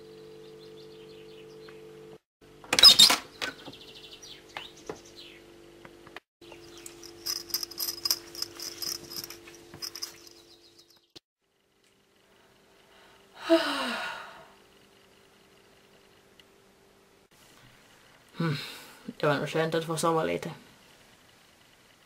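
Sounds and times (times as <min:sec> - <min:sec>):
steady low hum: 0:05.2 - 0:19.2
fast high chirring clicks: 0:06.5 - 0:11.0.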